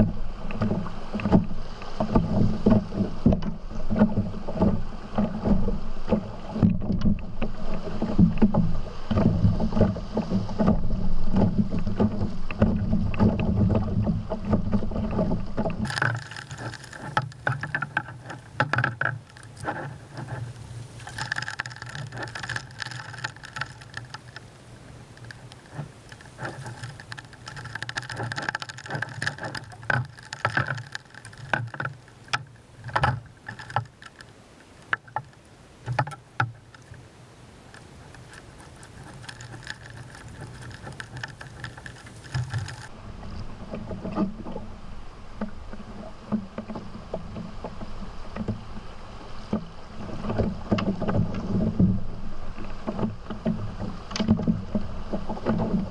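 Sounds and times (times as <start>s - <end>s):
knocks and clunks on canoe: 0.0s - 55.9s
water moving around canoe hull: 0.0s - 55.9s
rushing rapids: 15.1s - 43.1s.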